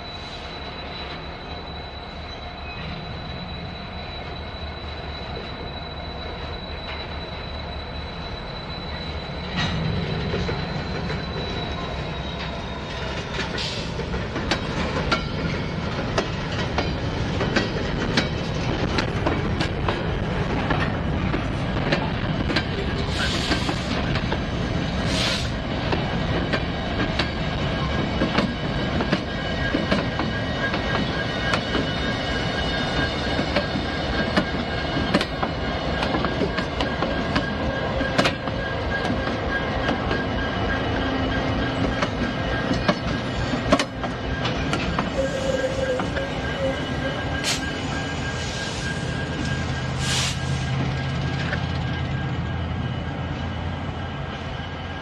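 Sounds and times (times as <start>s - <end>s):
freight train rolling past: 0.0s - 55.0s
train wheel squeal: 0.0s - 55.0s
air hissing bursts: 23.1s - 24.0s, 25.1s - 25.6s, 50.0s - 50.6s.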